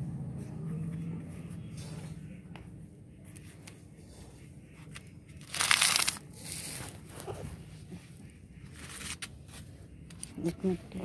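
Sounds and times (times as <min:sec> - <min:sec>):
crunching rustle: 0:05.4 - 0:07.4.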